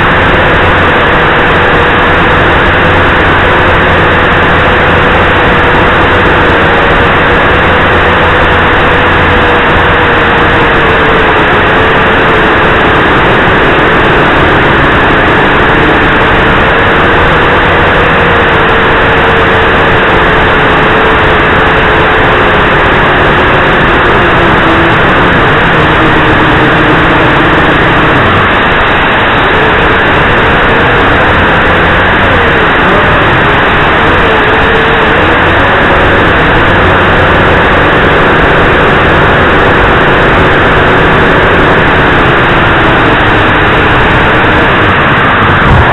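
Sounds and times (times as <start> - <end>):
drone propellers whirring: 0.0 - 45.9.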